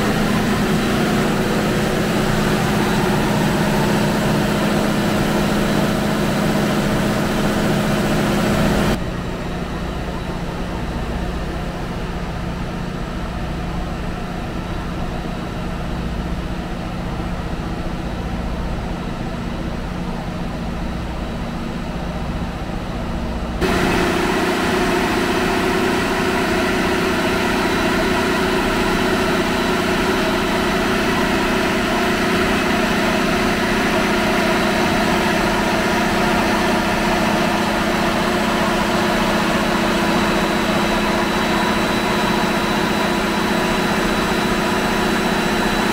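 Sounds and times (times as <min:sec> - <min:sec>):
diesel machinery drone: 0:00.0 - 0:45.9.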